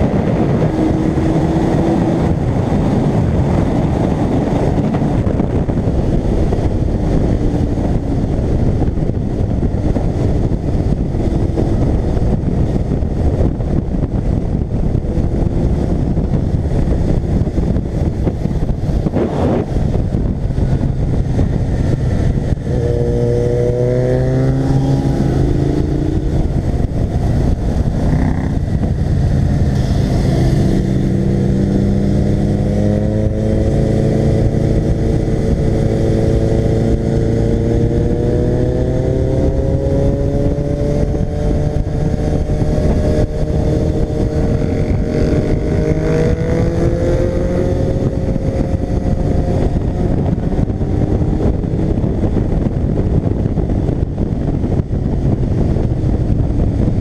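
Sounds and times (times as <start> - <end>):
motorcycle engine pulling hard: 0.0 - 57.0
wind on microphone: 0.0 - 57.0.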